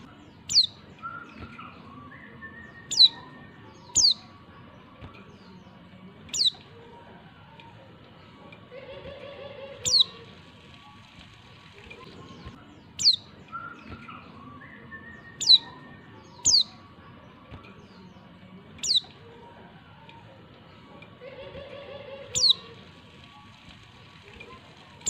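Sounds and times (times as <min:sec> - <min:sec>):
bird giving high downward calls: 0:02.1 - 0:04.3, 0:09.8 - 0:10.2, 0:14.4 - 0:16.8, 0:22.3 - 0:22.7.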